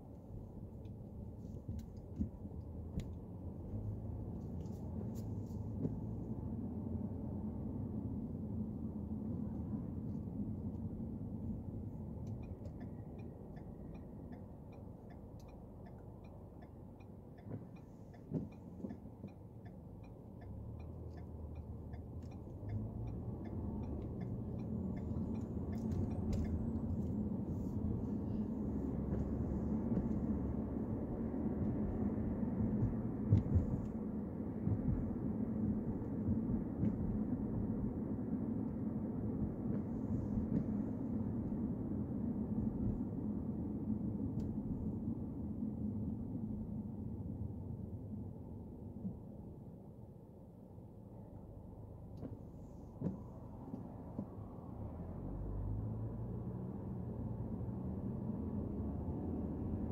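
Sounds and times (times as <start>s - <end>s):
engine and tyre rumble: 0.0s - 59.9s
turn signal ticking: 10.1s - 38.0s, 39.3s - 41.6s.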